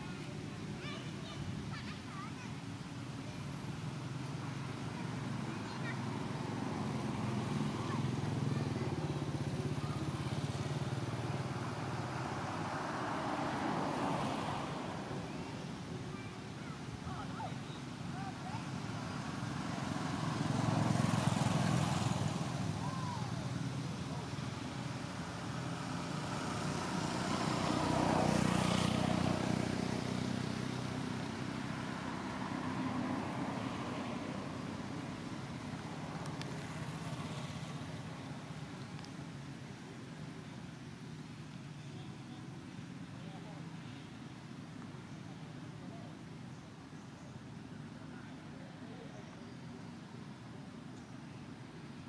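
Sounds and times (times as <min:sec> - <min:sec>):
vehicle passing by: 0:03.6 - 0:39.0.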